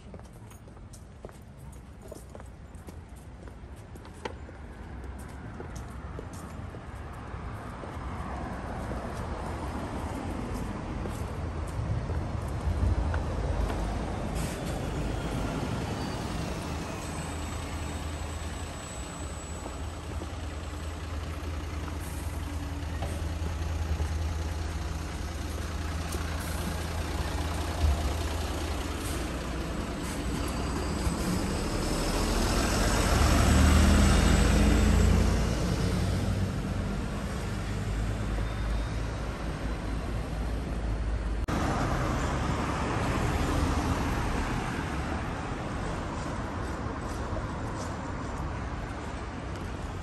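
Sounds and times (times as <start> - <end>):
traffic engine rumble: 0.0 - 50.0
vehicle passing close by: 26.8 - 38.4.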